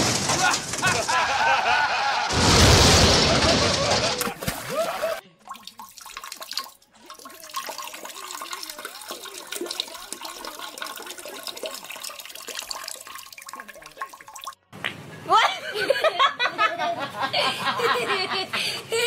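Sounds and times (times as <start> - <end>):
toilet flushing: 7.0 - 14.6.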